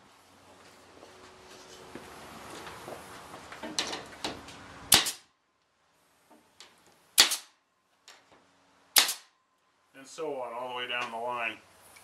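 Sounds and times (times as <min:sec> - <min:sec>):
pneumatic stapler shots: 0:04.9 - 0:05.3, 0:07.2 - 0:07.6, 0:09.0 - 0:09.3.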